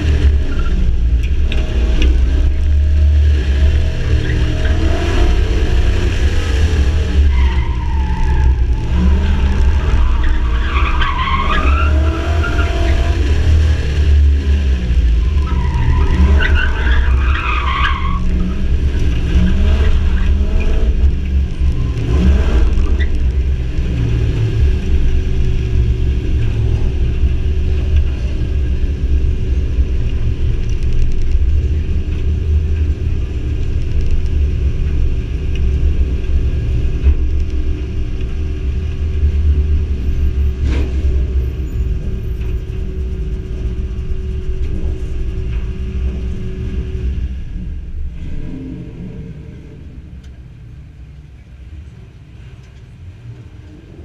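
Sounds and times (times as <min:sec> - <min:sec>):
tires squealing: 0:00.0 - 0:30.6
truck engine rumbling: 0:00.0 - 0:54.0.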